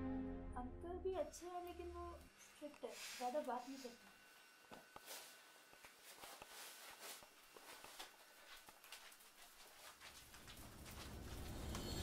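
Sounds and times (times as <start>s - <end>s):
soft taps and rustles: 5.8s - 11.8s.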